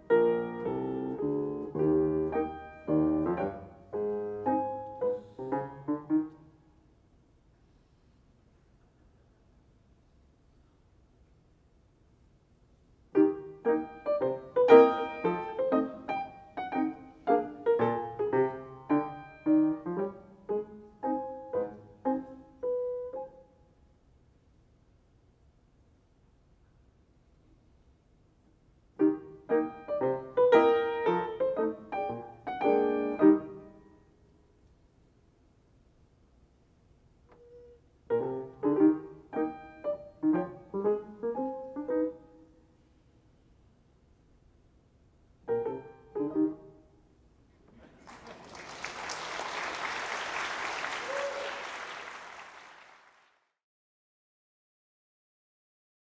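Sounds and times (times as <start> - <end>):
piano notes: 0.0 - 6.7, 13.1 - 23.6, 28.9 - 34.3, 37.4 - 42.6, 45.4 - 47.0.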